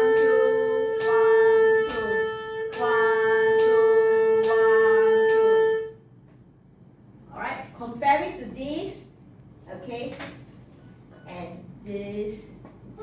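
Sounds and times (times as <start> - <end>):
erhu sustained bowed note: 0.0 - 6.0.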